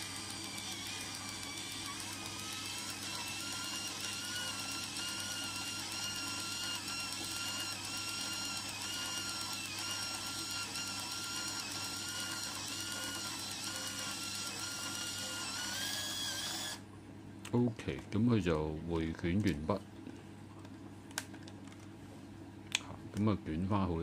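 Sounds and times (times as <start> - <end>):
camera motor whirring: 0.0 - 16.8.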